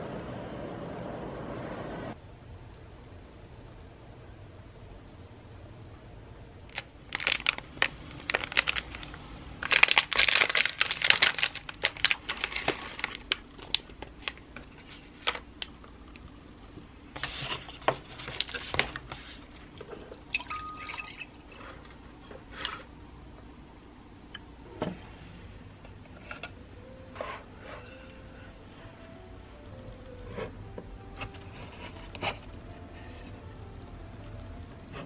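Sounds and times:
plastic packaging crinkling: 6.7 - 15.8, 17.2 - 21.3
milk pouring into a glass: 20.1 - 21.5.

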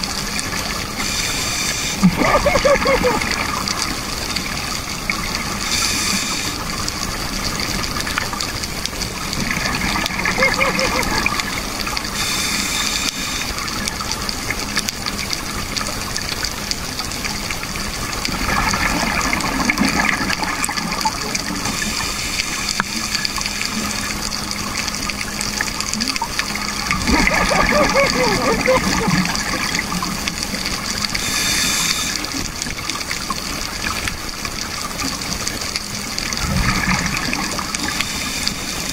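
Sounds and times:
air bubbles gurgling underwater: 0.0 - 38.9
steady underwater hiss: 0.0 - 38.9.

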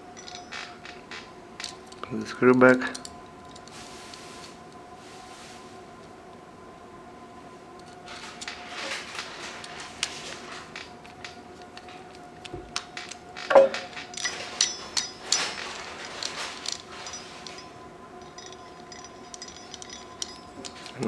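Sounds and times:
small metal clicks and clinks: 0.2 - 1.0, 1.6 - 3.7, 12.8 - 21.0
sharp metal knock: 13.5 - 13.9.

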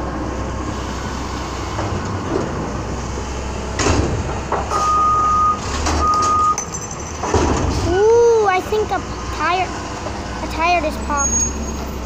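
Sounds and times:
truck diesel engine running: 0.0 - 12.0
reverse alarm beeps: 4.8 - 6.6.

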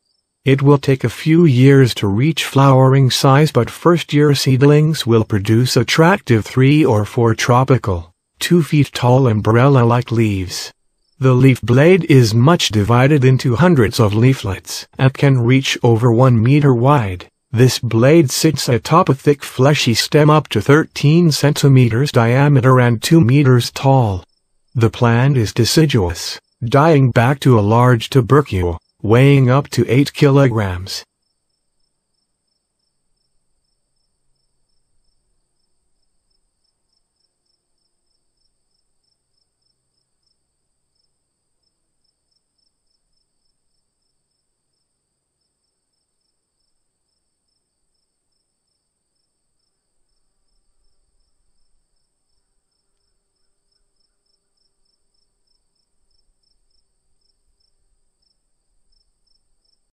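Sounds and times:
insects chirping: 0.0 - 0.4, 10.7 - 11.2, 24.2 - 24.8, 31.1 - 59.9.

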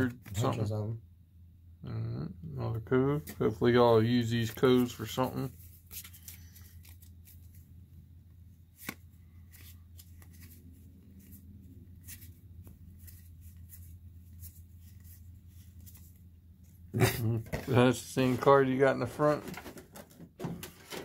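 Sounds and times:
cards clicking and rustling: 4.3 - 7.6, 8.7 - 16.8.

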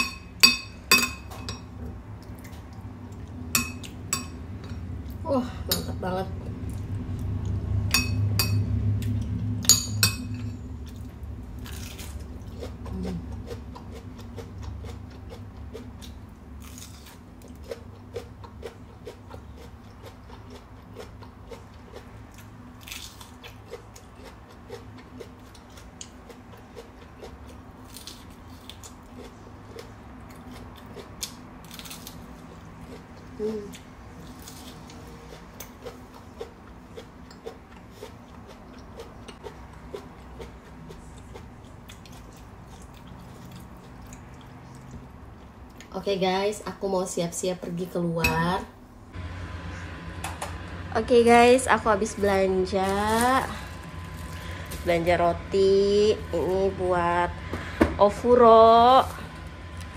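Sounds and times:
metal spoon clinking on plate: 3.6 - 4.8, 9.6 - 10.6
chewing: 10.8 - 45.9.

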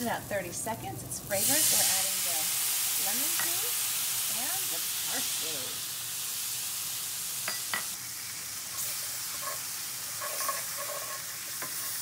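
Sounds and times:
hot pan sizzling: 0.0 - 12.0
wooden spoon scraping pan: 8.8 - 12.0.

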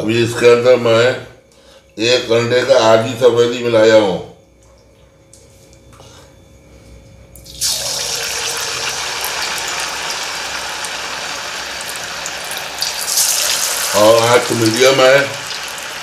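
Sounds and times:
hot oil sizzling: 7.5 - 16.0.

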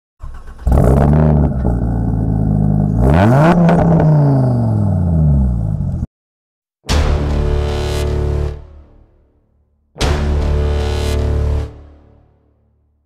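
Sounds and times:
car engine revving: 0.3 - 6.1.

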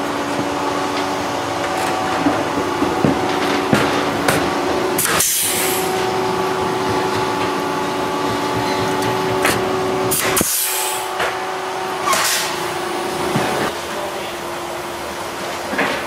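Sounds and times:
steady hum: 0.0 - 15.5
air hiss: 5.0 - 5.9, 10.1 - 11.2.

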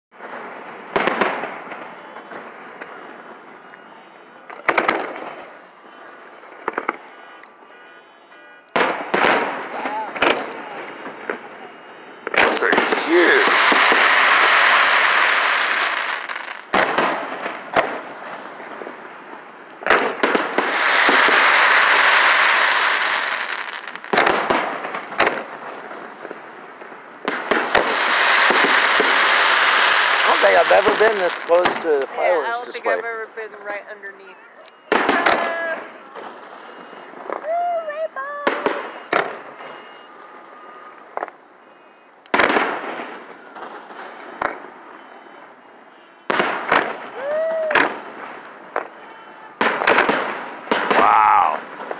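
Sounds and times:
fireworks bangs: 0.1 - 51.9
fireworks hiss: 12.2 - 19.5, 20.3 - 25.1, 27.3 - 31.8.

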